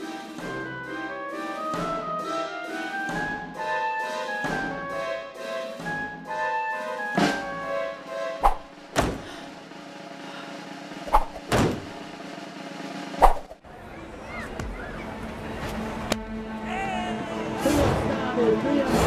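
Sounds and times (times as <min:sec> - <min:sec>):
orchestral film music: 0:00.0 - 0:13.2, 0:15.1 - 0:19.0
sharp thuds: 0:08.5 - 0:09.3, 0:11.1 - 0:12.0.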